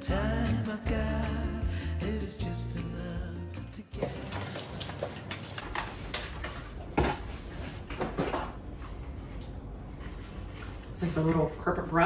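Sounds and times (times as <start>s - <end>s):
rustling paper and plastic: 4.0s - 8.5s.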